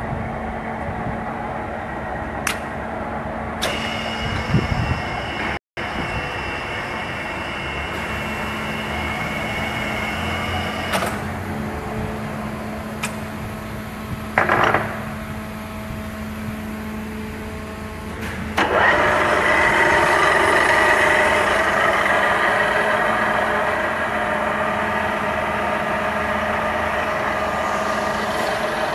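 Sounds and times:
milling machine drive whirring: 0:03.6 - 0:11.6, 0:18.6 - 0:28.9.

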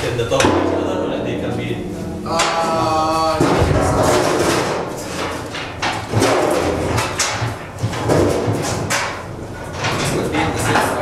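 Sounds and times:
voices: 0:00.0 - 0:05.6, 0:09.9 - 0:11.0
steel panels knocking: 0:00.0 - 0:11.0.

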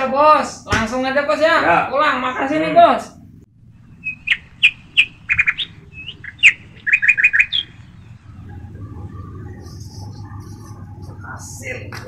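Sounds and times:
bird chirping: 0:03.7 - 0:11.4.

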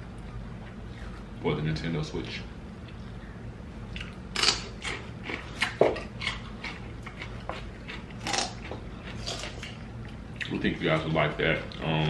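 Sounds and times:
chewing and lip-smacking: 0:03.9 - 0:11.9.

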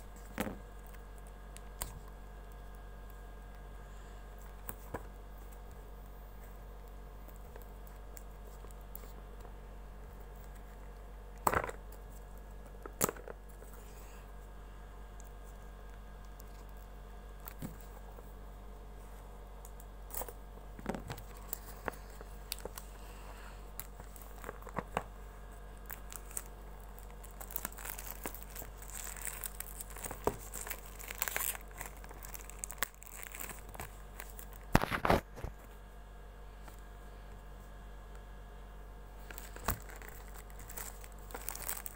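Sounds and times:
plastic shrink wrap crinkling: 0:19.7 - 0:35.5, 0:39.2 - 0:41.9.

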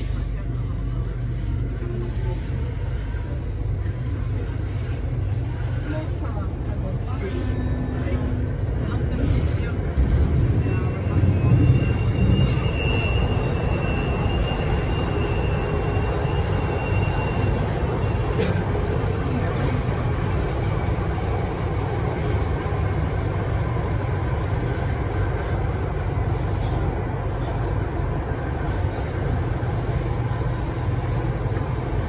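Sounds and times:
train wheels rumbling: 0:00.0 - 0:32.0
faint high whine: 0:10.0 - 0:32.0.

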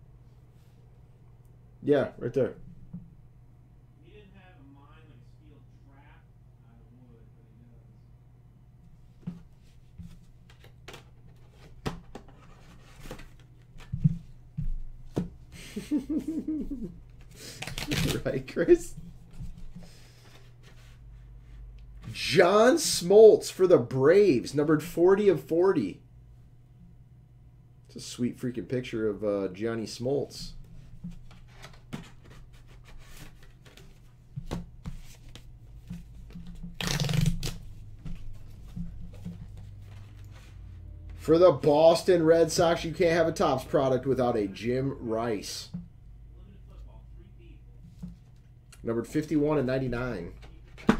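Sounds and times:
paper rustling: 0:17.6 - 0:21.0, 0:31.0 - 0:40.6
steady low hum: 0:23.1 - 0:50.9.

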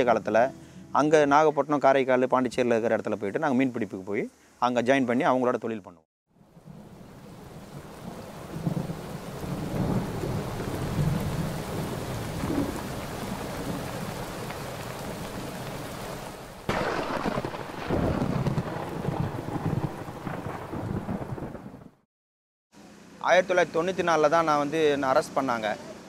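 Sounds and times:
steady rain: 0:06.4 - 0:22.0
rolling thunder: 0:06.6 - 0:14.4, 0:16.7 - 0:22.0.

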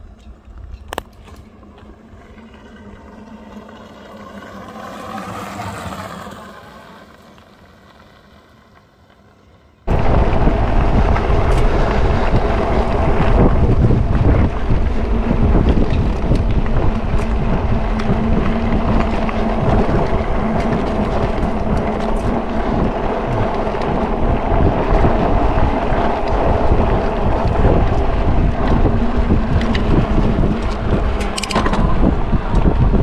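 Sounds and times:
electric motor hum: 0:09.9 - 0:33.0
wind buffeting microphone: 0:09.9 - 0:33.0
clicks and rattles: 0:29.4 - 0:32.7.

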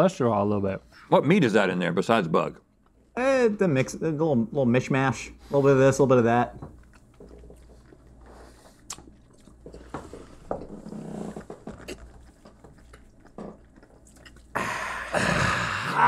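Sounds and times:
chewing with crunches: 0:06.2 - 0:15.2
breathy open-mouthed exhale: 0:14.5 - 0:16.0.

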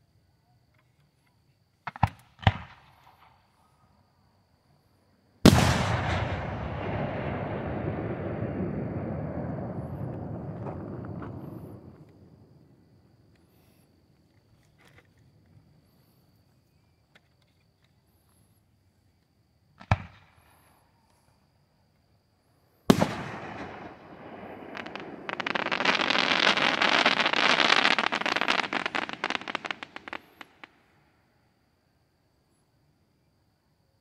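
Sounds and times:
firework bangs: 0:05.4 - 0:12.6, 0:22.9 - 0:30.8
firework crackling: 0:05.5 - 0:12.4, 0:22.9 - 0:30.9.

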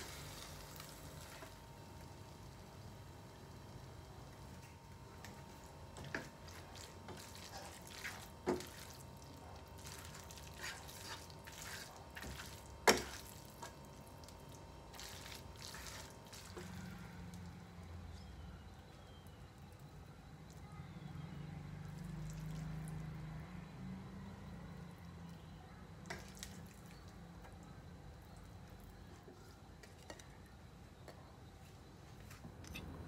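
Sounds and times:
pasta squishing and scraping: 0:06.0 - 0:17.6.

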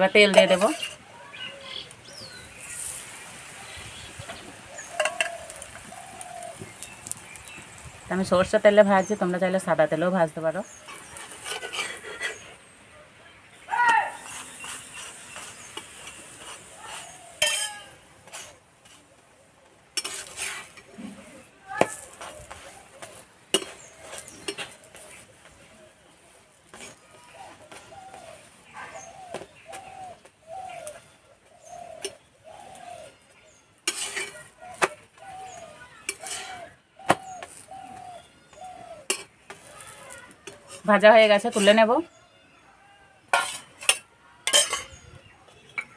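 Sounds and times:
spatula scraping iron griddle: 0:00.2 - 0:01.0, 0:04.8 - 0:06.2, 0:10.6 - 0:12.7, 0:14.2 - 0:19.2, 0:19.9 - 0:28.5, 0:31.7 - 0:41.9, 0:43.3 - 0:45.1
doves cooing: 0:04.3 - 0:07.0, 0:20.4 - 0:40.9
metal spatula clinking on a griddle: 0:04.8 - 0:05.5, 0:14.6 - 0:18.6, 0:20.0 - 0:20.9, 0:23.0 - 0:24.8, 0:33.8 - 0:34.9, 0:36.1 - 0:36.6, 0:39.1 - 0:39.7, 0:43.3 - 0:45.0.

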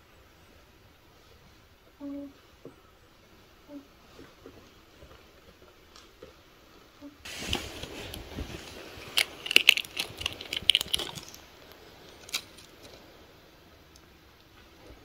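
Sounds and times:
fabric rustling: 0:07.2 - 0:13.1
sharp crinkling clicks: 0:07.5 - 0:13.0.

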